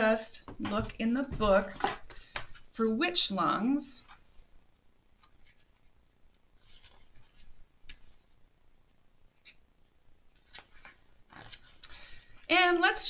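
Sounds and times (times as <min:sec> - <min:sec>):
pages rustling: 0:04.0 - 0:09.6, 0:10.3 - 0:13.0.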